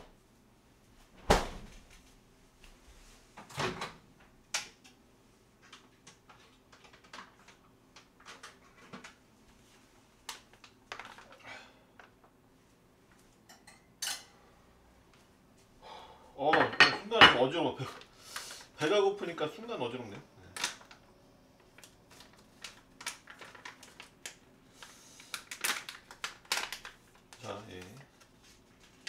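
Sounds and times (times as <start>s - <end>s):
food packets set down: 10.4s - 11.4s
kitchen items knocking: 16.5s - 17.5s.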